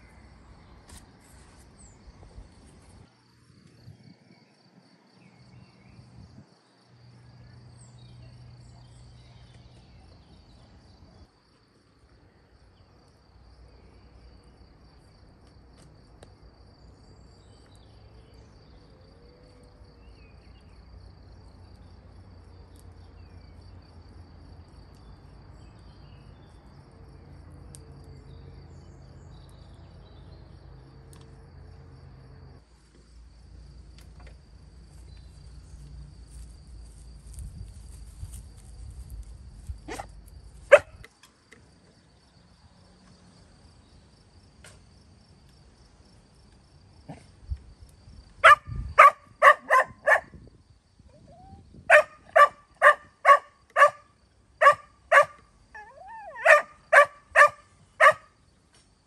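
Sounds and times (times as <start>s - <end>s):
high insect chirping: 0.0s - 59.0s
dog barking: 39.9s - 40.1s, 40.7s - 41.0s, 48.4s - 50.3s, 51.9s - 55.4s, 56.3s - 58.3s.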